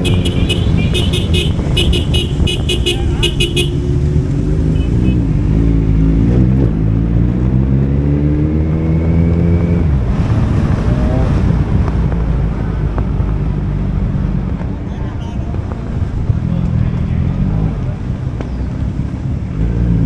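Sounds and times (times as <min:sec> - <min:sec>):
wind on microphone: 0:00.0 - 0:04.4.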